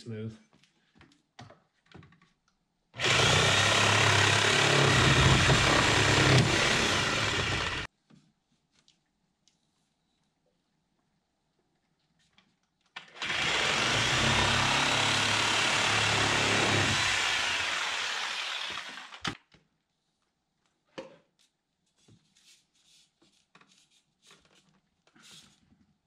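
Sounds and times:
reciprocating saw cutting pipe: 0:03.0 - 0:07.9, 0:13.2 - 0:19.4.

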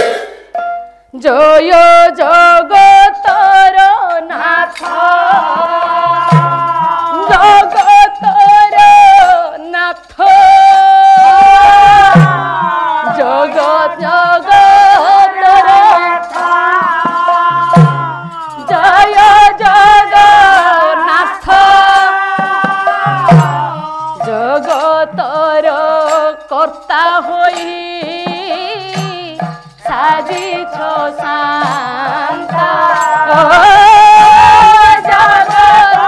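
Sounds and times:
cymbal strikes: 0:00.0 - 0:01.1
drum strikes: 0:00.0 - 0:01.1, 0:04.4 - 0:09.3, 0:10.2 - 0:36.0
person singing devotional melody: 0:01.0 - 0:36.0.

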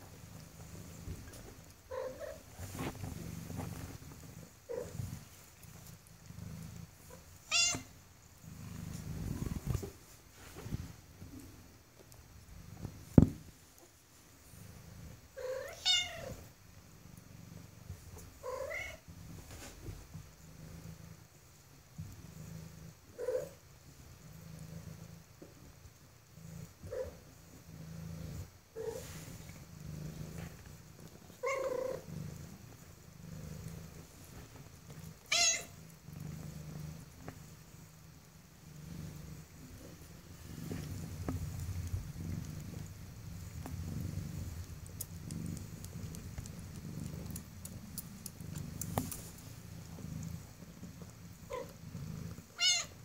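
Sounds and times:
low purr: 0:00.0 - 0:53.0
thump: 0:13.1 - 0:13.4.

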